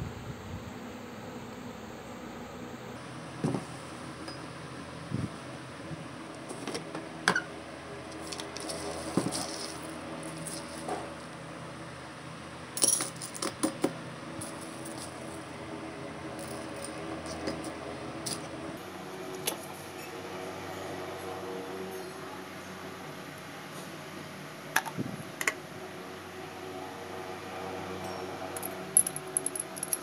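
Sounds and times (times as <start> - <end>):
steady low hum: 0.0 - 30.0
seeds rattling on metal bowl: 8.1 - 10.9.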